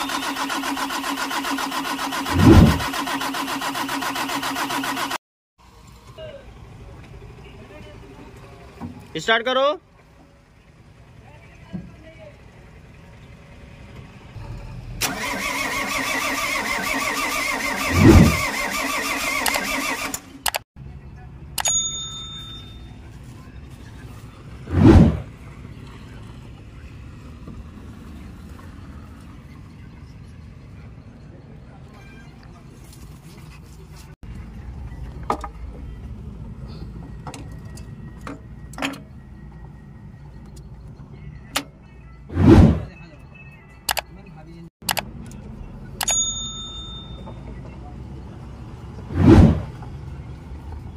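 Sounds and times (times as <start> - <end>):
starter motor cranking diesel engine: 0.0 - 5.2, 14.4 - 20.6
low engine surge: 1.8 - 3.0, 17.4 - 18.6, 24.6 - 25.7, 42.3 - 43.0, 49.0 - 49.9
clicks: 19.4 - 20.6, 43.9 - 44.1, 44.8 - 45.4.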